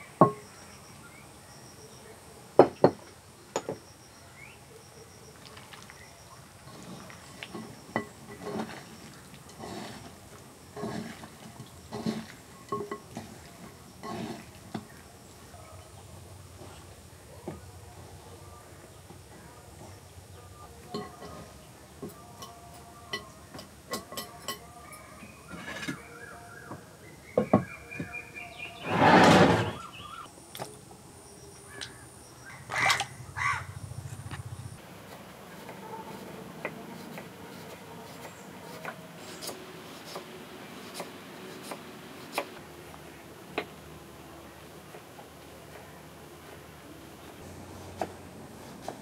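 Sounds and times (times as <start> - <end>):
knife slicing onion: 35.0 - 42.6.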